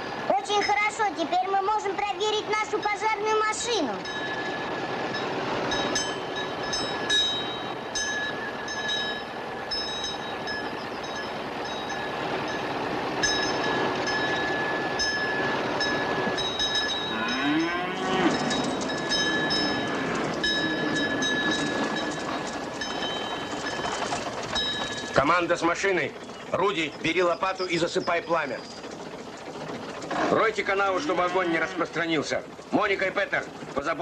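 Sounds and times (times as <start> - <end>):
fire engine bell ringing: 0.5 - 1.0, 2.5 - 29.2
calf mooing: 17.1 - 18.5, 19.6 - 20.4, 31.0 - 32.0.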